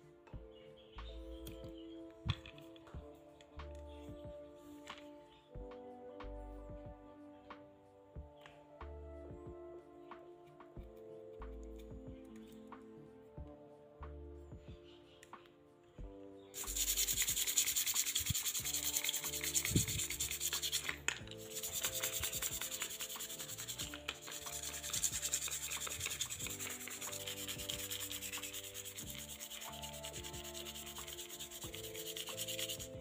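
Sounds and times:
hand sanding scratchy strokes: 16.6s - 33.0s.

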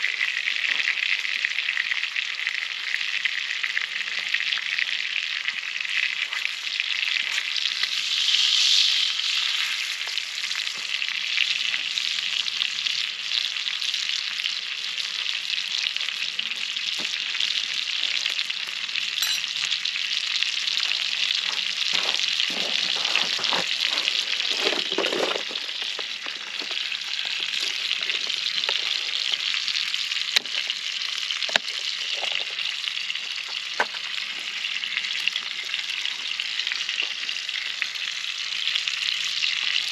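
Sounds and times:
food sizzling in a pan: 0.0s - 39.9s
scraping or shuffling: 22.0s - 26.8s.

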